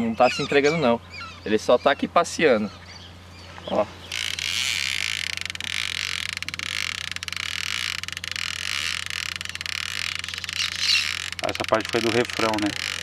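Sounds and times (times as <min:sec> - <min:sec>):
fishing reel drag buzzing: 0:04.0 - 0:13.0.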